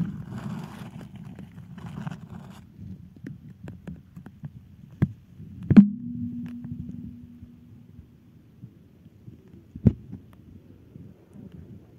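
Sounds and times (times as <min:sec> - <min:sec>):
muffled underwater rumble: 0:02.8 - 0:11.9
sharp knocks: 0:05.7 - 0:07.8.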